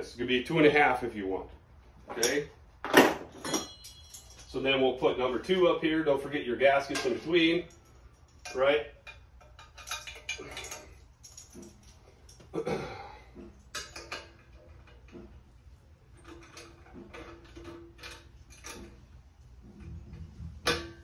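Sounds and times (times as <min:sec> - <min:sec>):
metal fittings clicking and clinking: 0:06.8 - 0:12.5, 0:13.3 - 0:15.5, 0:16.2 - 0:21.0.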